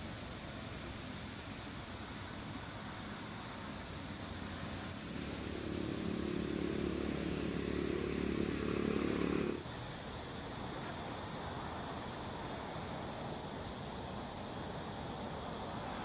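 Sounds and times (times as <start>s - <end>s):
background hiss: 0.0s - 16.0s
engine running: 3.9s - 9.8s.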